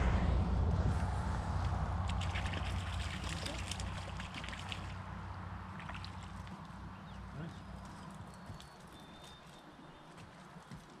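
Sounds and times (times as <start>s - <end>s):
vehicle passing rumble: 0.0s - 8.3s
stream water trickling: 1.4s - 10.7s.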